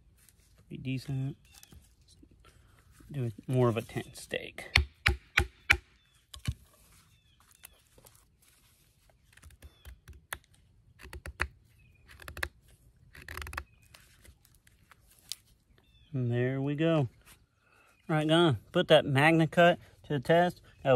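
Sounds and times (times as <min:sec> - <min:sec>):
knife shaving wood: 0:06.7 - 0:15.5.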